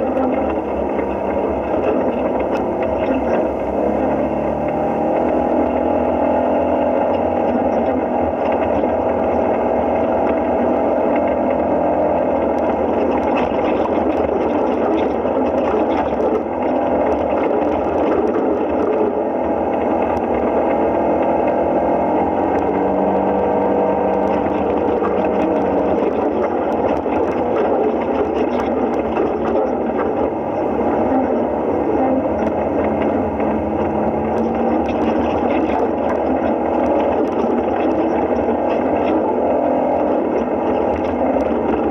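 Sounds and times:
vehicle engine droning: 0.0 - 41.9.

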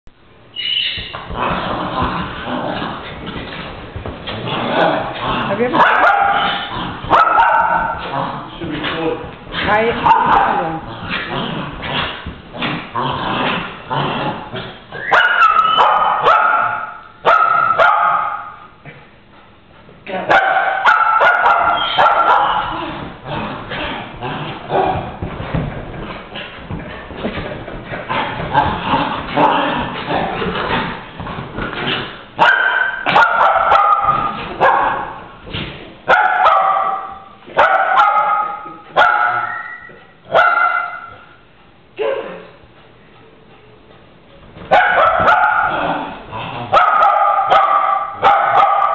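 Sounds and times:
dogs scuffling and growling: 1.1 - 15.1, 21.3 - 32.4, 33.0 - 36.1
small dog barking: 5.8 - 6.5, 7.1 - 7.9, 15.1 - 18.5, 20.3 - 22.6, 32.4 - 35.1, 36.1 - 39.7, 40.3 - 41.0, 44.7 - 45.8, 46.7 - 48.9.

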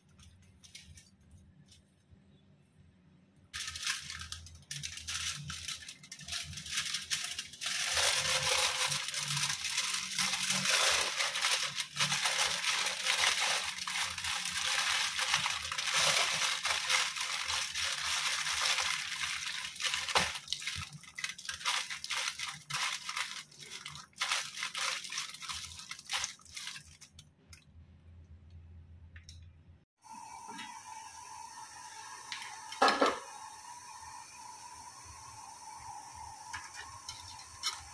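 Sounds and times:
aluminium foil crinkling: 0.0 - 1.8, 3.5 - 27.6, 36.6 - 37.9.

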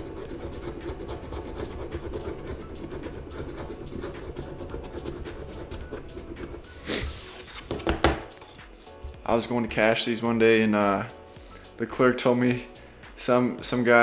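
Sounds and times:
lottery ticket scratching: 0.0 - 7.6.

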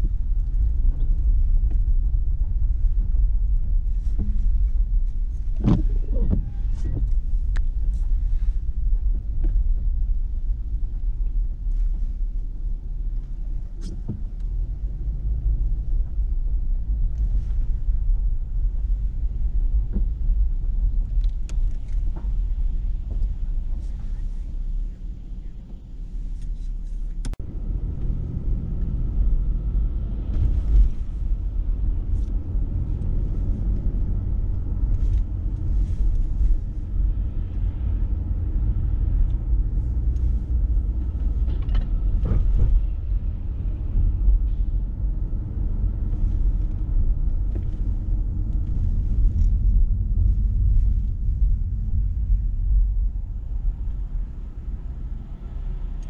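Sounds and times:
car road and engine rumble: 0.0 - 56.0
click: 21.2 - 22.0.

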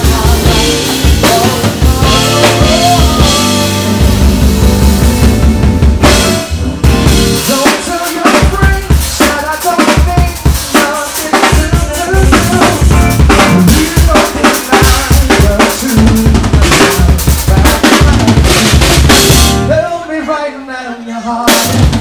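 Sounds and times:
electric bass guitar: 0.0 - 7.8, 12.1 - 14.2, 15.3 - 20.0
drum kit beat: 0.0 - 20.0, 21.4 - 22.0.

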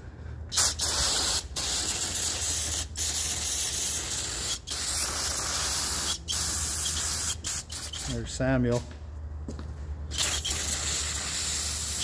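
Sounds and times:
aerosol spray hissing: 0.5 - 8.2, 10.2 - 12.0.

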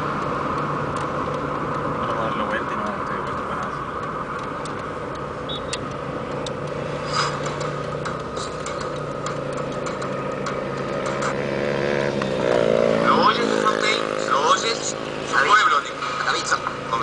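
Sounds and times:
engine and road hum: 0.0 - 17.0
light clicks and ticks: 0.1 - 6.8.

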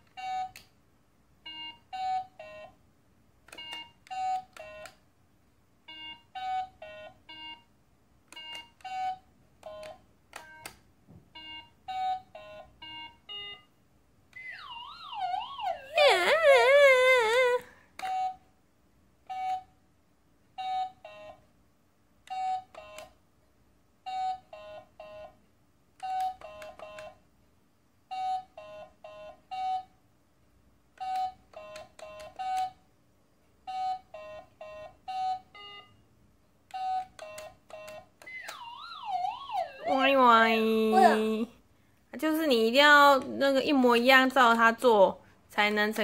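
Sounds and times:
wavering siren-like electronic sound: 38.5 - 40.1.

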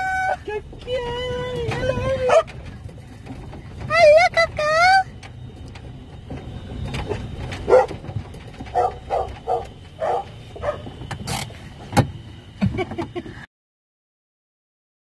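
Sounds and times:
low steady car rumble: 0.0 - 13.5
dogs barking: 2.3 - 2.6, 7.6 - 11.0.

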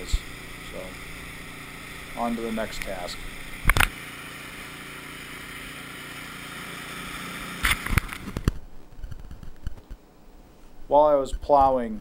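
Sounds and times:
snowblower engine running: 0.0 - 8.5.

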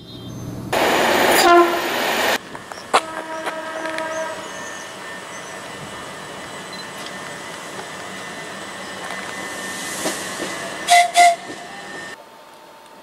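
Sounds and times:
electric train running: 0.7 - 12.8
train horn blasts: 1.2 - 2.0, 2.9 - 5.2, 10.9 - 12.1.

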